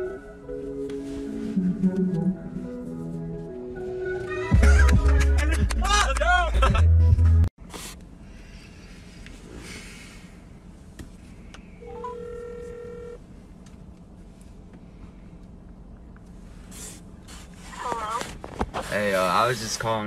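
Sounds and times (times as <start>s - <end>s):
low background hum: 7.6s - 20.0s
phone ring tone: 11.8s - 13.2s
phone rising beeps: 11.8s - 13.2s.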